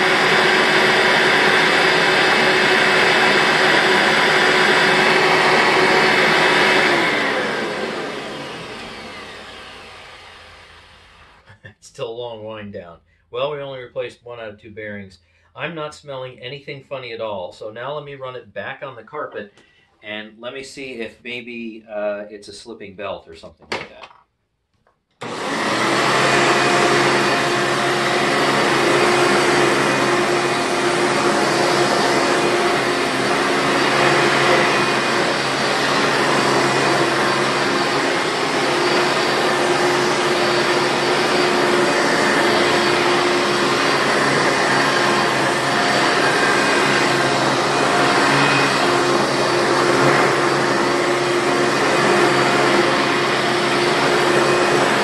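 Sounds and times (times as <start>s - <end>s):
vacuum cleaner running: 0.0s - 11.6s, 25.2s - 55.0s.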